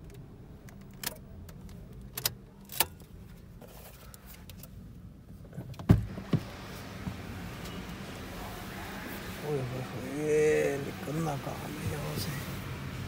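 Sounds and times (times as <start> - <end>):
car door thumps: 5.8 - 7.2.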